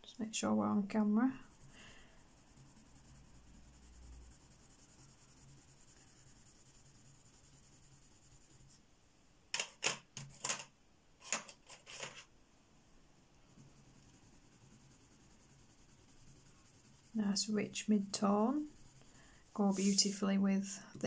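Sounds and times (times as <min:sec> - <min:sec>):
pencil shading on paper: 0:01.0 - 0:08.8, 0:13.5 - 0:20.3
sharp clicks and knocks: 0:09.5 - 0:12.2.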